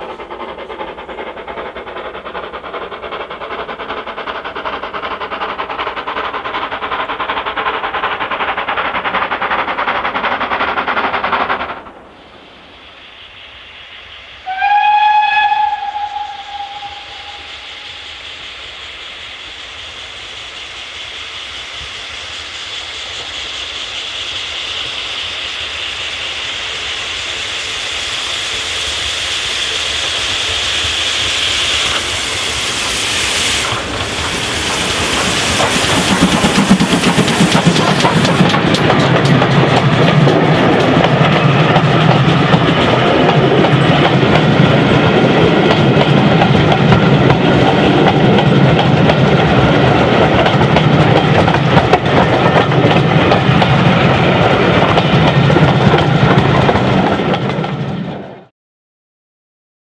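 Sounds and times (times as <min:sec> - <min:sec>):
steady hiss of steam: 0:00.0 - 0:58.0
steam locomotive exhaust: 0:00.0 - 0:58.5
steam whistle blast: 0:14.4 - 0:18.2.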